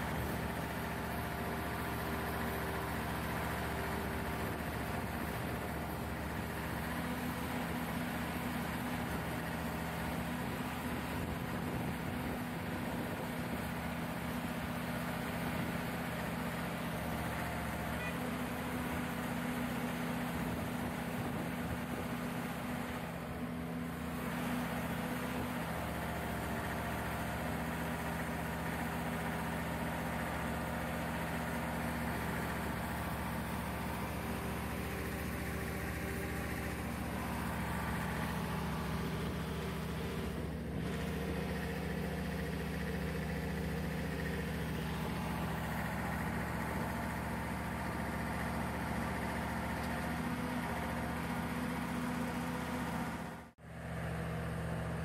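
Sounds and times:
diesel engine idling: 0.0 - 55.0.

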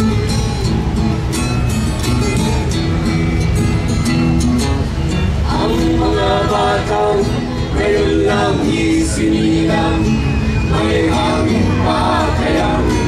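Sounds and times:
acoustic guitar strumming: 0.0 - 13.0
group singing together: 5.4 - 13.0.

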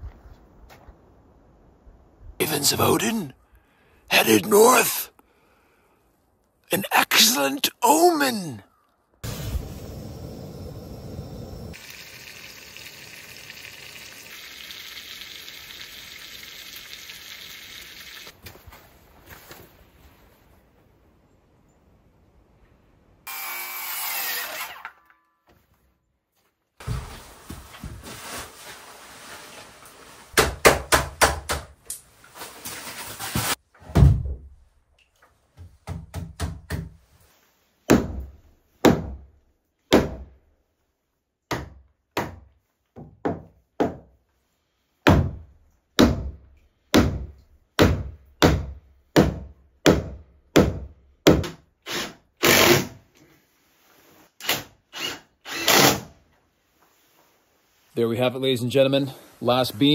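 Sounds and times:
cordless drill driving screws: 54.4 - 56.1.

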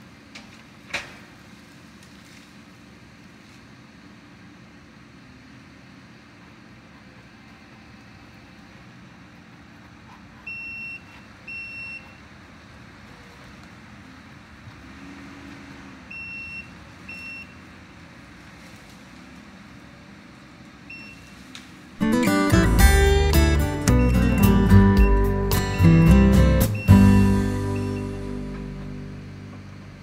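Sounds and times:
distant track loader running: 0.0 - 30.0
backup alarm beeping: 10.5 - 12.2, 22.5 - 29.4.

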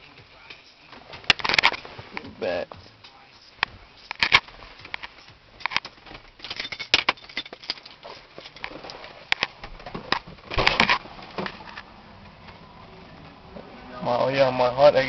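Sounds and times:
camera handling clicks and rustling: 1.3 - 1.8, 4.1 - 6.0.

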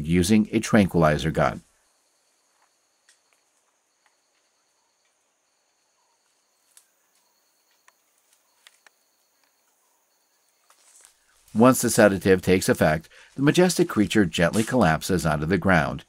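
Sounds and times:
insects trilling: 1.6 - 15.1
faint clicks: 6.2 - 9.8.

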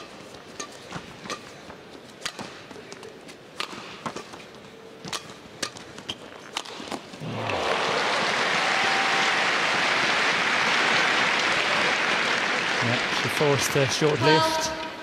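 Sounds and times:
racket striking shuttlecock: 0.0 - 1.6, 3.6 - 4.4, 5.0 - 7.0
crowd applause: 7.2 - 14.6.

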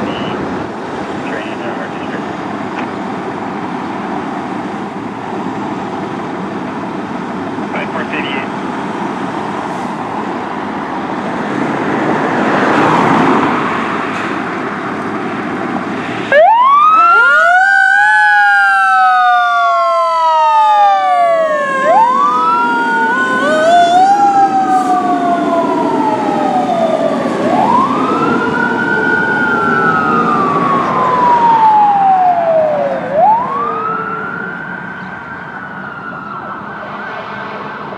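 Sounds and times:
siren wailing: 16.3 - 37.9.

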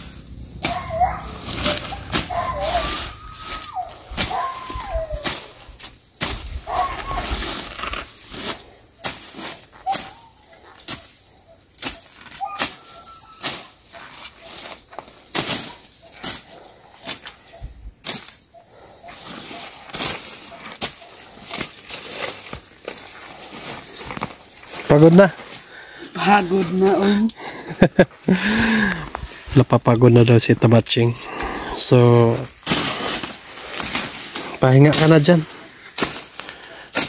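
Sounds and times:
machete swishing through grass: 0.6 - 11.1, 32.5 - 35.2, 36.0 - 36.4.

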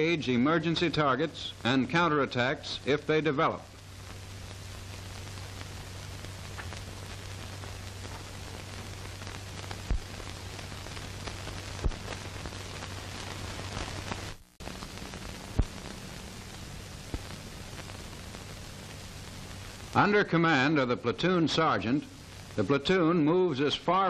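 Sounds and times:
film hiss and crackle: 0.0 - 24.0
low hum: 3.5 - 20.0
sharp pops: 4.1 - 19.9.

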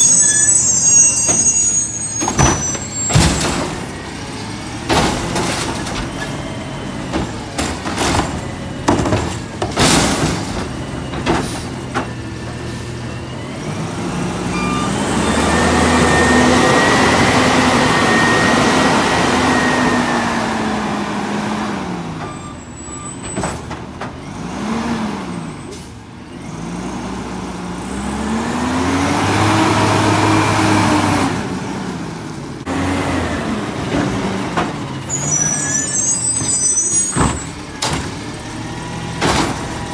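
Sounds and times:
truck engine revving: 9.6 - 22.2, 24.2 - 25.6, 26.4 - 39.9.

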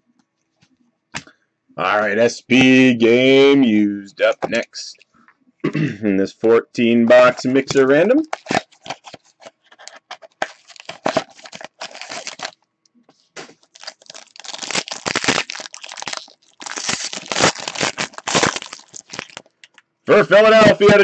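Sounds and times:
cardboard box handled and opened: 8.3 - 12.5
foil pack tearing and crinkling: 8.3 - 12.6, 13.4 - 19.5.

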